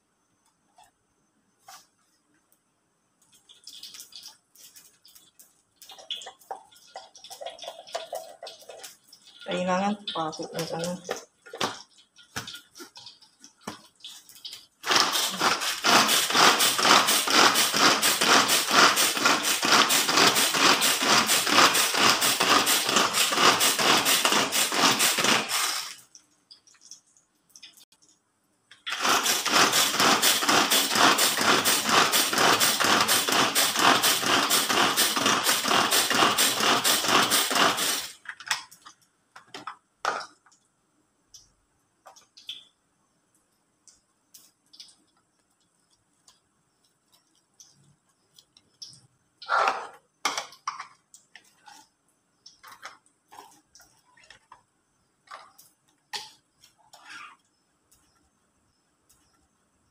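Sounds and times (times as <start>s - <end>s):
food chopper whirring and rattling: 14.8s - 26.0s, 28.9s - 38.2s.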